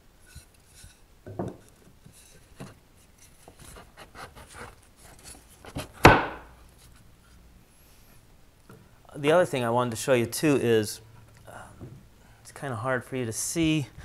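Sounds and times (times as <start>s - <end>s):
wood rubbing and scraping: 0.2s - 6.2s
wooden knock: 6.0s - 6.4s.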